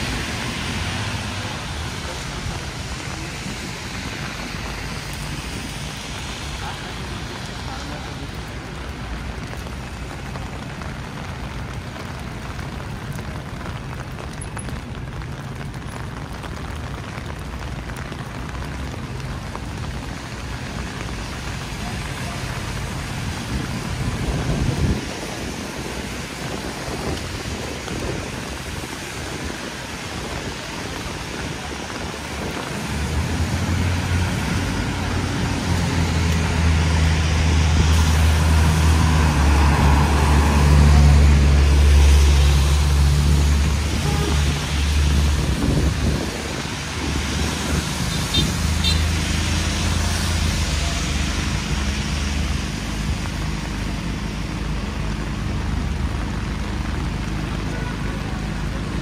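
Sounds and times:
city traffic rumbling: 0.0s - 59.0s
heavy rain on umbrella: 0.0s - 59.0s
vehicle engine hum: 0.0s - 59.0s.

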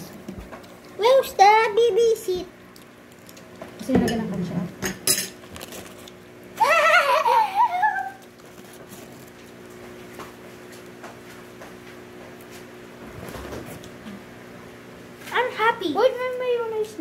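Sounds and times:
faint steady hum: 0.0s - 17.0s
girl squealing: 6.6s - 8.2s.

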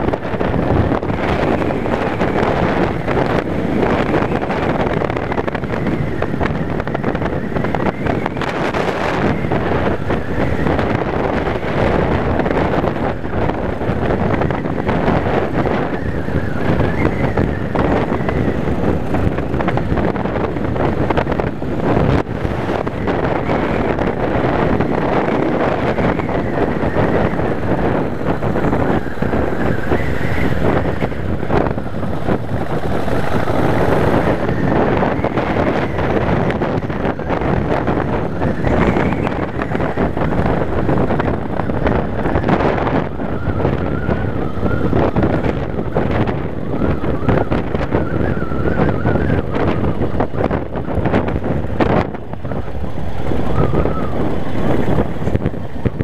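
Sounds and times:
motorcycle engine running: 0.0s - 56.0s
wind buffeting microphone: 0.0s - 56.0s.

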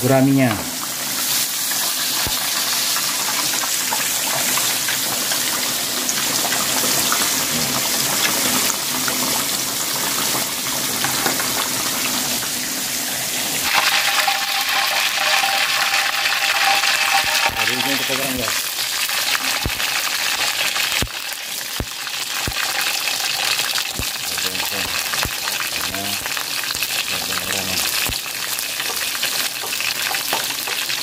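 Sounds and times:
fish deep-frying in hot oil: 0.0s - 31.0s.

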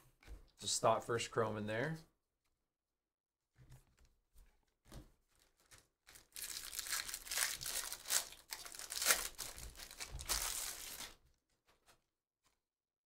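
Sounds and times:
foil wrapper tearing and crinkling: 5.4s - 11.2s.

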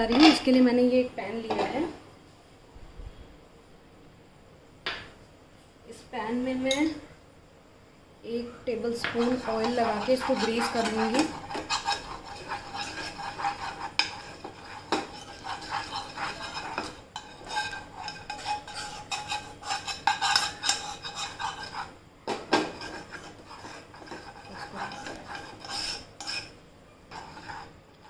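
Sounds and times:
spoon scraping a frying pan: 8.8s - 28.0s.

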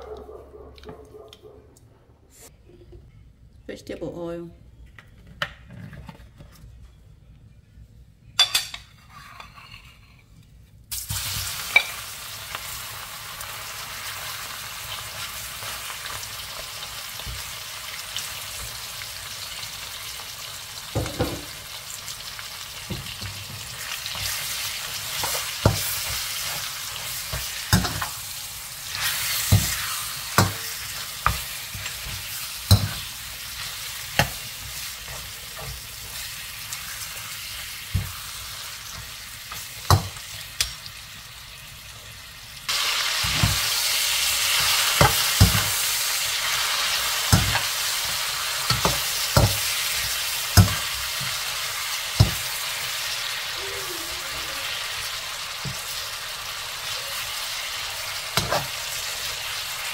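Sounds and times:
metal spatula scraping wok: 8.9s - 10.3s
meat sizzling in oil: 10.9s - 59.9s.

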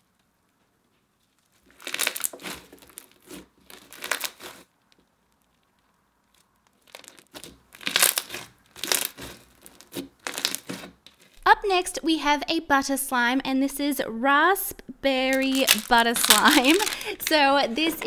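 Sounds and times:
crunchy slime being squished: 0.8s - 11.4s, 15.3s - 17.3s.

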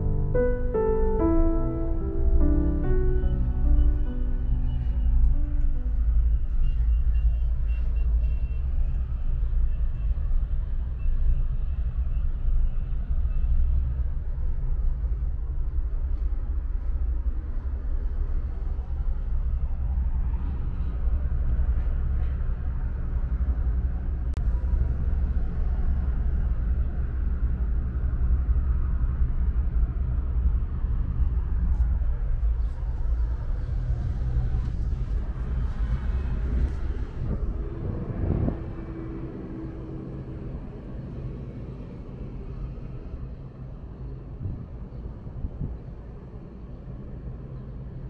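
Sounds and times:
cable car cabin rumbling: 29.9s - 46.7s.

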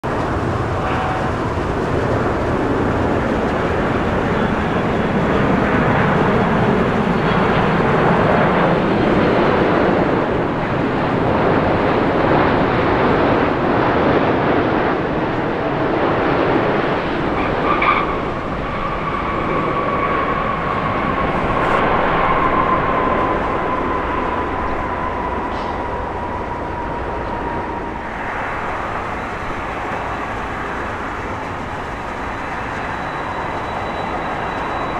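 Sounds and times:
jet engine roar: 0.0s - 34.9s
engine whine falling in pitch: 17.3s - 34.9s.

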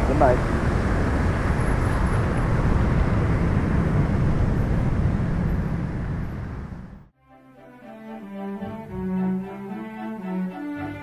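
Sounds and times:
jet engines deep rumble: 0.0s - 7.1s.

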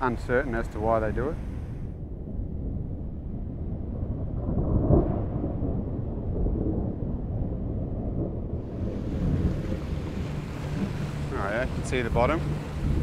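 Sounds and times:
rain hiss: 0.0s - 2.0s, 8.6s - 13.0s
thunder rumbling: 0.0s - 13.0s.

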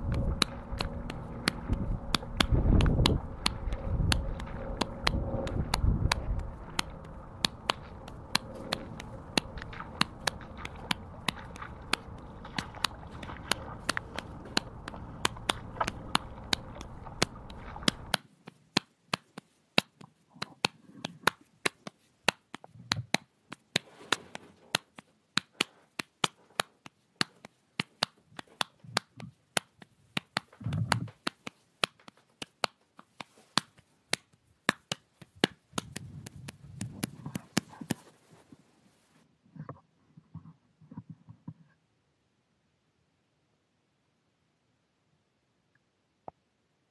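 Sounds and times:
low rushing background: 0.0s - 18.1s
rake clicking over wet grass: 0.0s - 34.0s.

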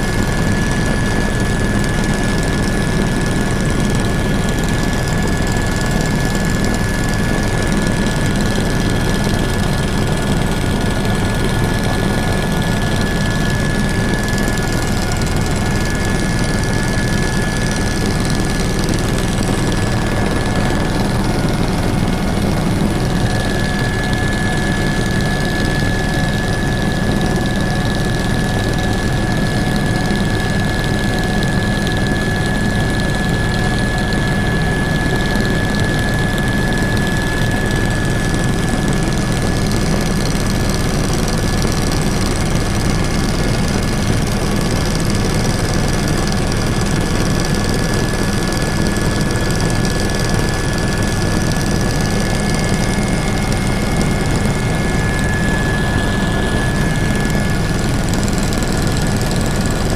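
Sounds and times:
helicopter engine and rotor: 0.0s - 59.9s
high-pitched turbine whine: 0.0s - 59.9s.

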